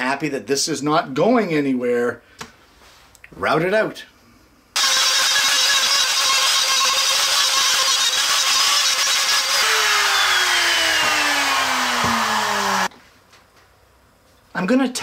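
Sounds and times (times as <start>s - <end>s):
router cutting wood: 4.8s - 12.9s
router spinning down whine: 4.8s - 12.9s.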